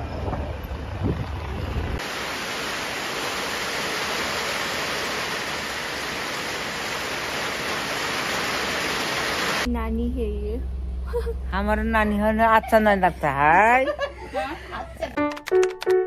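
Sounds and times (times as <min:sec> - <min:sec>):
vehicle rumble and wind buffeting: 0:00.0 - 0:02.1
steady rushing hiss: 0:01.9 - 0:09.7.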